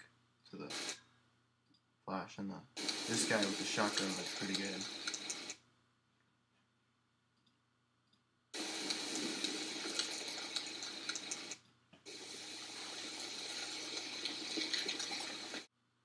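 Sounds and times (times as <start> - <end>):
loud rushing hiss: 2.8 - 5.5, 8.6 - 14.3
sharp clicks: 2.8 - 5.6.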